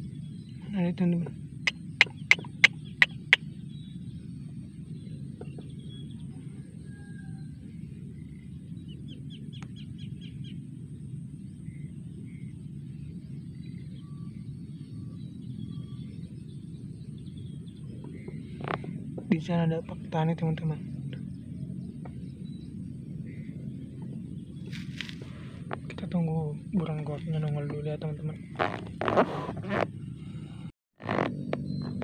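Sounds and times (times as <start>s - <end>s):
faint bird chirps: 0.0s - 32.0s
steady low rumble: 0.0s - 32.0s
rapid ticks: 1.7s - 3.4s
sharp click: 1.7s - 3.4s.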